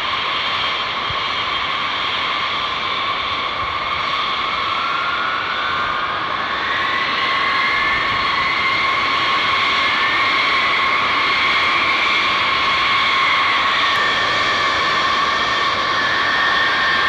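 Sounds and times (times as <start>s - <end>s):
jet engines whining: 0.0s - 17.0s.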